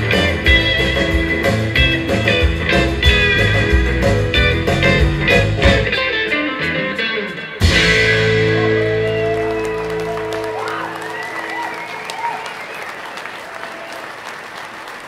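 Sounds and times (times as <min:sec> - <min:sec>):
drums and bass: 0:00.0 - 0:10.9
twangy electric guitar band: 0:00.0 - 0:11.1.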